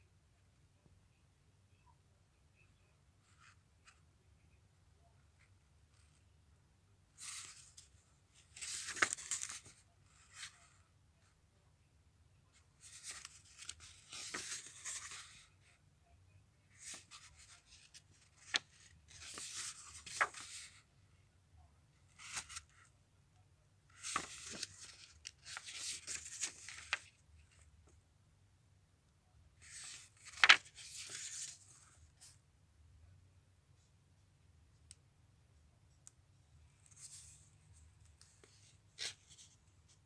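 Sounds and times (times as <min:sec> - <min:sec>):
paper crinkles and ticks: 0:07.2 - 0:10.8, 0:12.8 - 0:15.4, 0:16.8 - 0:20.8, 0:23.9 - 0:27.2, 0:29.6 - 0:31.6
paper pages rustling: 0:07.2 - 0:10.8, 0:12.8 - 0:15.7, 0:16.7 - 0:20.9, 0:22.1 - 0:22.9, 0:23.9 - 0:27.6, 0:29.6 - 0:32.4, 0:38.1 - 0:40.0.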